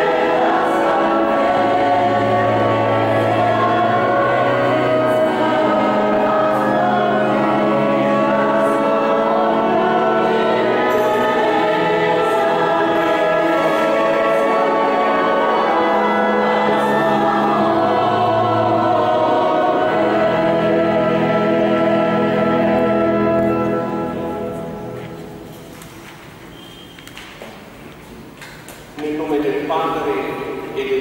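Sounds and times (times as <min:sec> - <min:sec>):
choir singing a slow hymn: 0:00.0 - 0:25.8.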